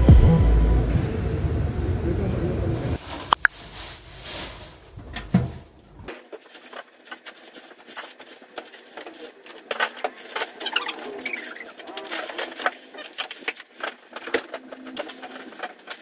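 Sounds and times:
plastic bags rustling: 0:03.0 - 0:16.0.

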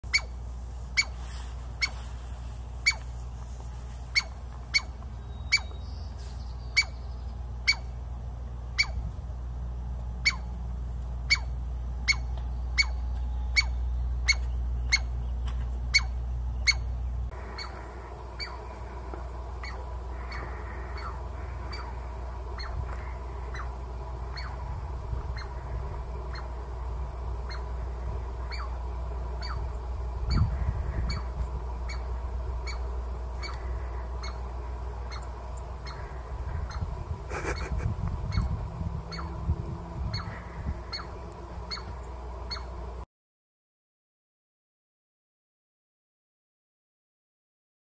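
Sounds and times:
squirrel barking: 0:00.0 - 0:02.1, 0:02.8 - 0:03.1, 0:04.1 - 0:05.8, 0:06.7 - 0:08.0, 0:08.7 - 0:09.1, 0:10.2 - 0:10.6, 0:11.2 - 0:15.2, 0:15.9 - 0:39.4, 0:40.0 - 0:42.8.

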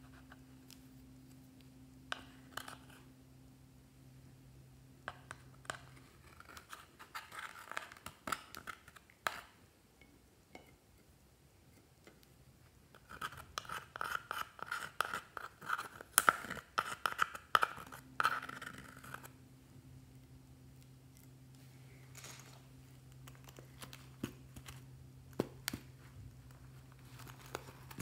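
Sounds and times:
metal tool scraping eyeshadow: 0:12.9 - 0:19.4.

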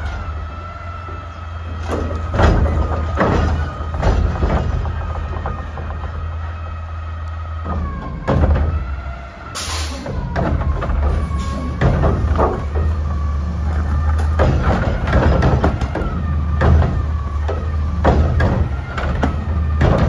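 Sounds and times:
diesel engine running: 0:00.0 - 0:20.0
hydraulic whine: 0:00.0 - 0:20.0
air brake hiss: 0:09.6 - 0:10.1.

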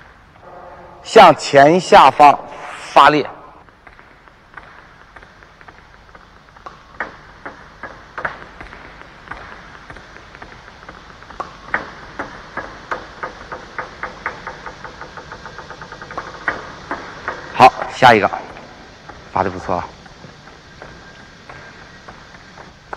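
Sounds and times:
table tennis balls clicking: 0:03.7 - 0:17.5.

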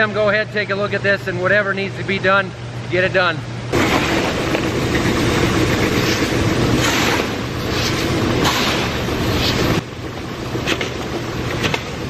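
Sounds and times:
shovel scraping and throwing corn: 0:05.9 - 0:09.8.

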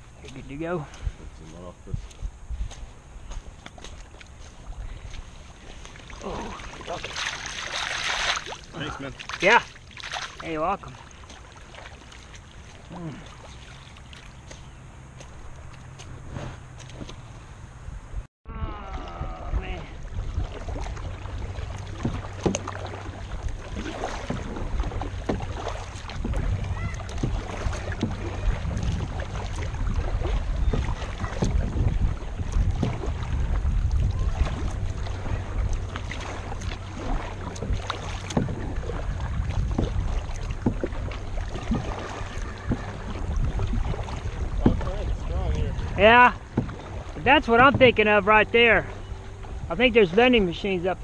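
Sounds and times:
wind rumble on microphone: 0:00.0 - 0:06.6, 0:14.7 - 0:48.0
paddle splashing in water: 0:00.0 - 0:17.3, 0:18.6 - 0:51.0.

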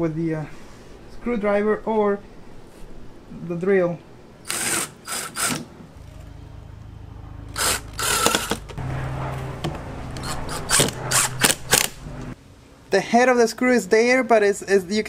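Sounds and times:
cordless drill motor running: 0:04.4 - 0:05.7, 0:07.5 - 0:08.7, 0:10.2 - 0:11.9.

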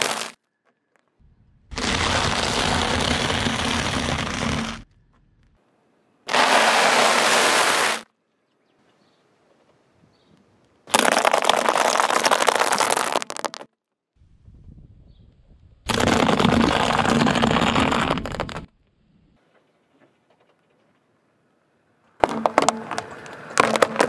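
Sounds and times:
car tyre crushing dry food: 0:00.0 - 0:00.4, 0:01.7 - 0:05.5, 0:06.3 - 0:08.1, 0:10.9 - 0:13.7, 0:15.9 - 0:18.7, 0:22.2 - 0:24.0.

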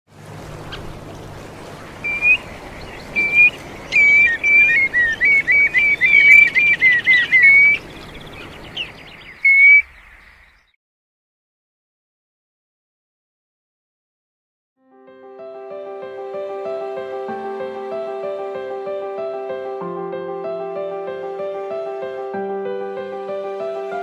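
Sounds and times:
wading birds whistling calls: 0:00.2 - 0:10.8.

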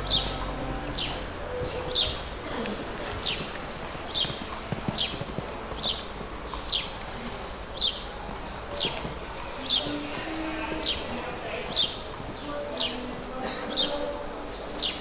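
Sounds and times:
horse cantering on sand: 0:02.7 - 0:13.2.

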